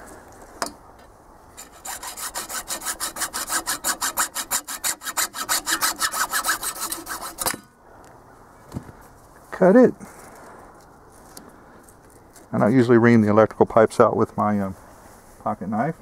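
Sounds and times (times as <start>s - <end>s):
hacksaw cutting plastic pipe: 1.6s - 7.7s.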